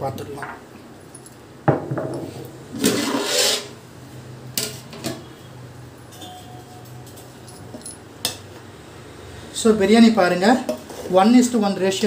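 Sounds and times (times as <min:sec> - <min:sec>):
lid scraping metal pot rim: 0:02.8 - 0:03.8.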